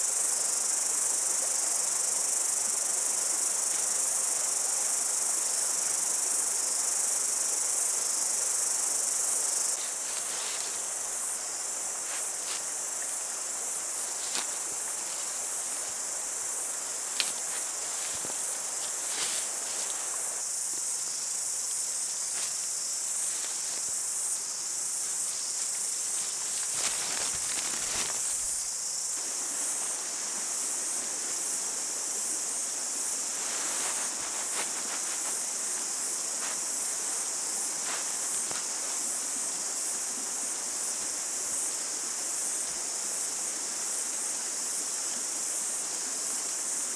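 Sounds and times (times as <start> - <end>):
high-pitched insect chorus: 0.0 - 46.9
tent rustling and clicking: 25.4 - 28.6, 33.4 - 35.4.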